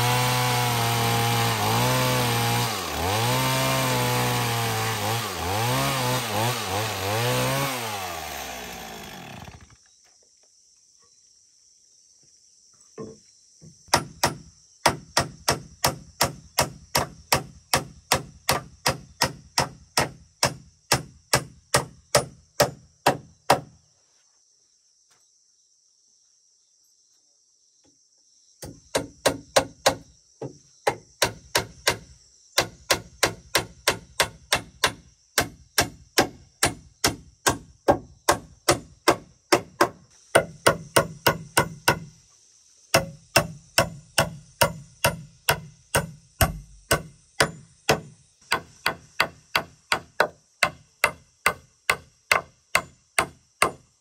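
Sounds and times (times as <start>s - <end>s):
high insect drone: 4.4s - 54.0s
hammer striking wooden logs: 13.9s - 23.7s, 28.6s - 30.0s, 30.8s - 42.1s, 42.9s - 53.8s.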